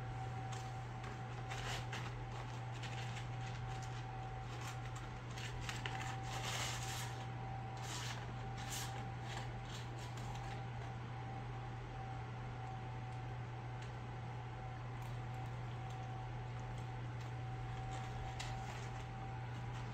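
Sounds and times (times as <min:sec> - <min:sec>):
paws rummaging in paper carton: 0:00.5 - 0:10.8, 0:17.6 - 0:19.9.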